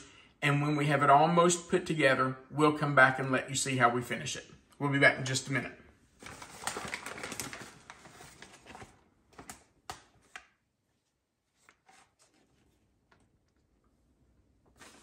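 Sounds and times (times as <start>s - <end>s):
plastic bag crinkling: 6.2s - 9.8s.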